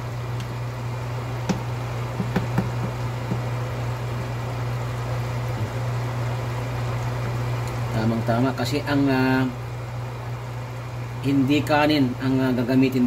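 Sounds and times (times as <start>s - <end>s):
steady low hum: 0.0s - 13.0s
spoon knocking against pan: 1.5s - 3.5s.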